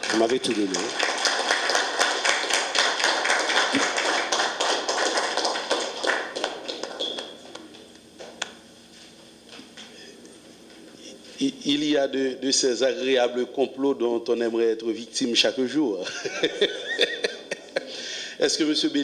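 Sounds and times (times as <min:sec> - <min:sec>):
audience applause: 0:00.0 - 0:07.5.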